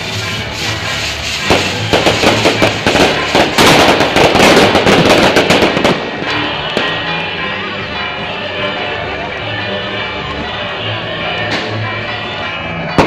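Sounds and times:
firecrackers crackling: 0.0s - 8.3s
background music: 0.0s - 13.0s.

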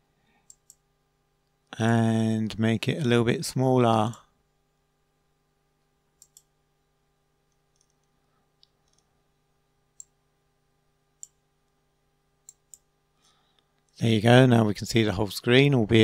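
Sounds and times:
computer mouse clicks: 0.4s - 0.8s, 6.2s - 6.5s, 7.5s - 9.1s, 12.4s - 12.9s.

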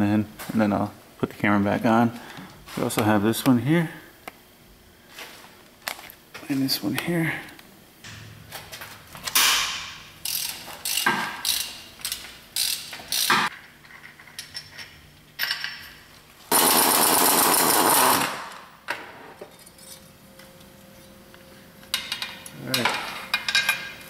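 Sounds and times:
power ratchet spinning: 10.2s - 13.5s, 16.5s - 18.4s
metal tools clanking: 21.9s - 24.0s.

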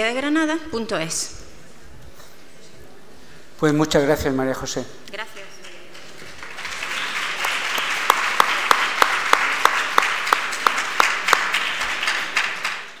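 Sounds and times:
audience applauding: 5.6s - 13.0s
close person clapping: 5.6s - 13.0s.

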